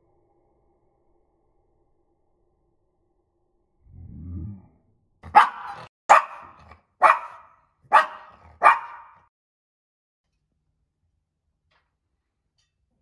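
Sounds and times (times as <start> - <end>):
small dog barking sharply: 5.2 - 9.3.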